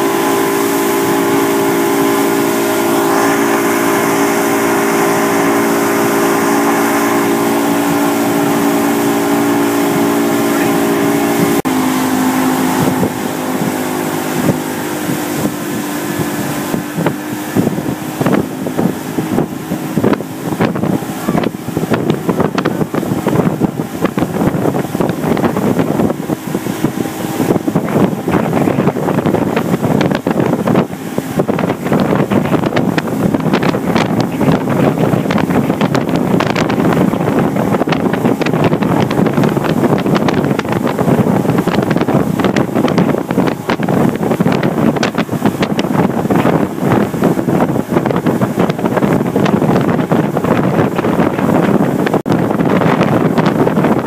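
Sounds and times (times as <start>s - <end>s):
outboard motor droning: 0.0s - 54.0s
rush of boat wake: 0.0s - 54.0s
wind buffeting microphone: 0.0s - 54.0s.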